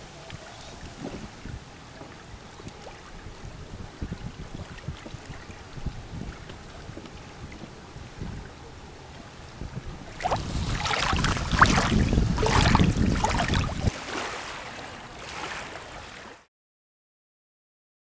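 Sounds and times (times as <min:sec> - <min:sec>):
waves splashing on pebbly shore: 0:10.2 - 0:16.4.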